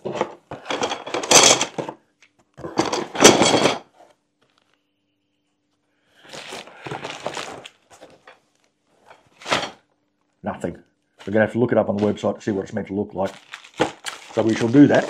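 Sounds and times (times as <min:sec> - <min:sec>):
cardboard box rustling: 0:06.3 - 0:08.2, 0:13.3 - 0:15.0.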